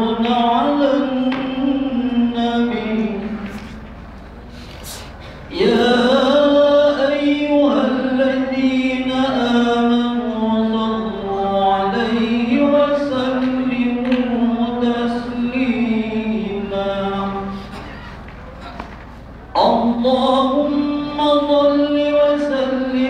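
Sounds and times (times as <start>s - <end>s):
man chanting prayer call: 5.5s - 18.2s, 19.6s - 23.0s.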